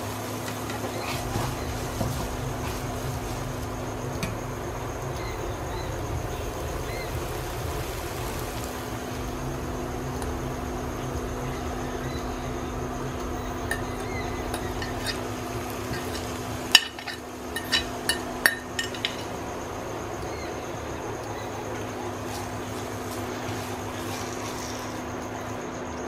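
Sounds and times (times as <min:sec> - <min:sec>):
cooktop hum with fan hiss: 0:00.0 - 0:26.0
fork scraping and clinking on pan: 0:13.7 - 0:19.4.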